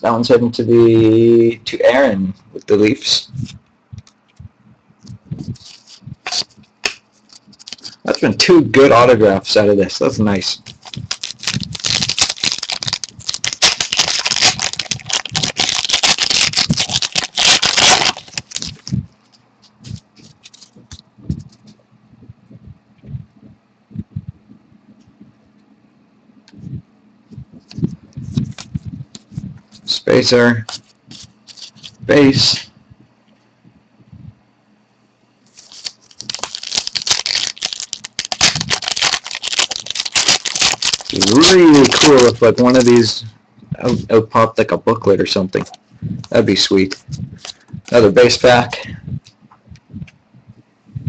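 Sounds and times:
wrapper tearing and crinkling: 0:05.6 - 0:08.0, 0:10.6 - 0:19.0, 0:19.8 - 0:21.0, 0:30.6 - 0:32.0, 0:35.5 - 0:43.0.

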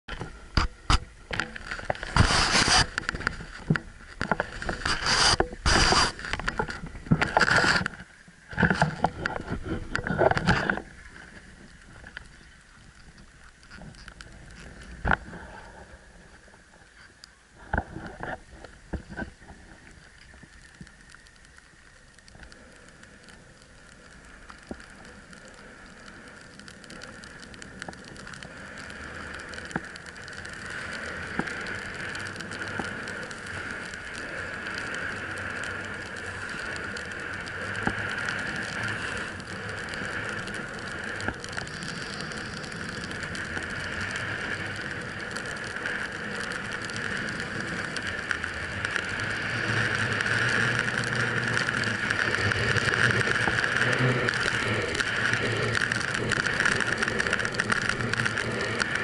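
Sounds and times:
snowboard sliding over snow: 0:00.1 - 0:17.0, 0:17.6 - 0:59.0
steady hiss: 0:00.1 - 0:59.0
gloved hand rubbing camera housing: 0:02.1 - 0:03.0, 0:04.8 - 0:06.2.

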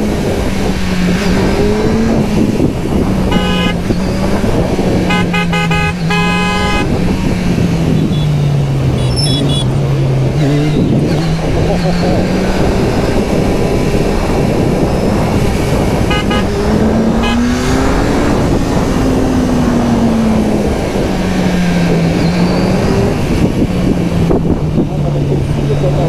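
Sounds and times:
heavy wind rush: 0:00.0 - 0:26.0
short horn beeps: 0:03.3 - 0:03.8, 0:05.1 - 0:06.9, 0:08.0 - 0:08.4, 0:09.0 - 0:09.7, 0:16.1 - 0:16.5.

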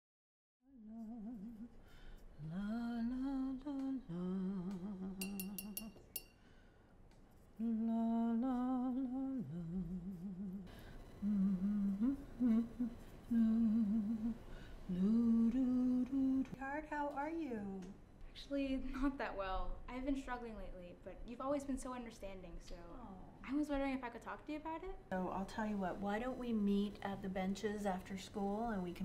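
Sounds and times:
woman humming: 0:00.7 - 0:01.8, 0:02.4 - 0:05.9, 0:07.6 - 0:16.6.

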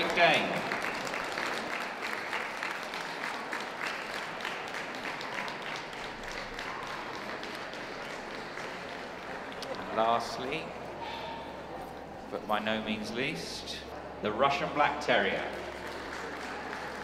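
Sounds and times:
audience applauding: 0:00.0 - 0:10.6, 0:15.2 - 0:17.0.

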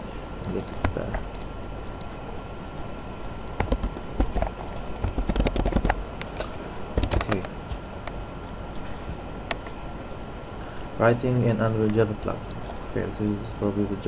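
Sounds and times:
keyboard typing clicks: 0:03.2 - 0:07.5.

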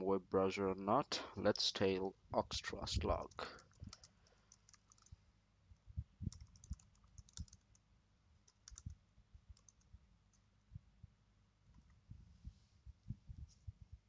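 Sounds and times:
keyboard typing: 0:03.6 - 0:05.2, 0:06.3 - 0:07.8, 0:08.4 - 0:09.0, 0:09.6 - 0:10.4.

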